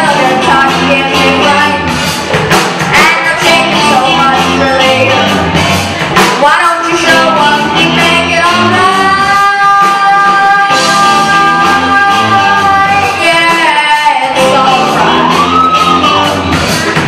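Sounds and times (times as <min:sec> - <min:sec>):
boy singing: 0:00.0 - 0:01.9, 0:02.9 - 0:05.6, 0:06.2 - 0:16.3
rock band playing: 0:00.0 - 0:17.0.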